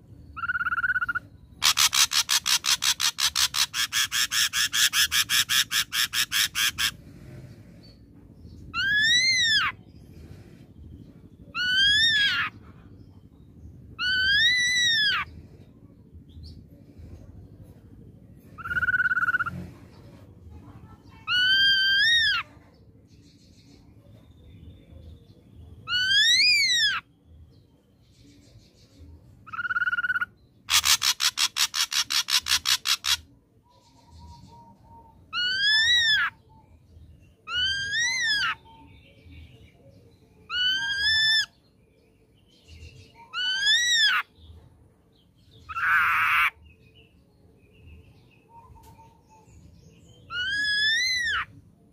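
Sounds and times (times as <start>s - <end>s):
harsh bird rattle: 1.6s - 6.9s, 30.7s - 33.2s
bird whistled calls: 50.3s - 51.5s.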